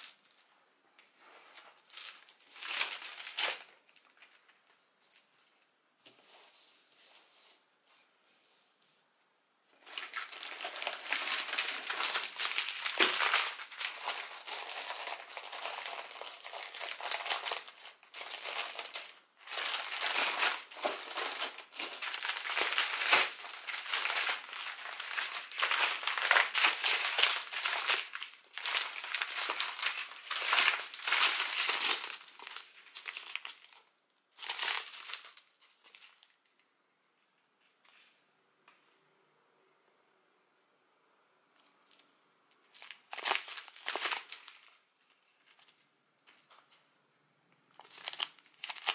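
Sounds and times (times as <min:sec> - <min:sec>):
plastic bags crinkling: 0:01.6 - 0:05.6, 0:09.8 - 0:36.6, 0:42.6 - 0:46.8, 0:47.7 - 0:48.9.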